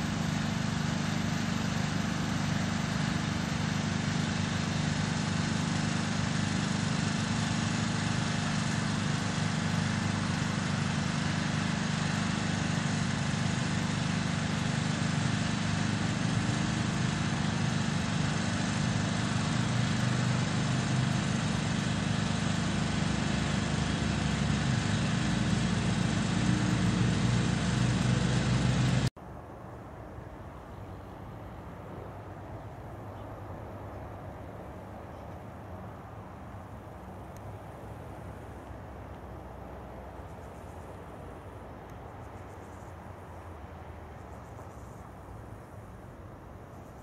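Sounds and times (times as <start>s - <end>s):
small engine running: 0.0s - 29.1s.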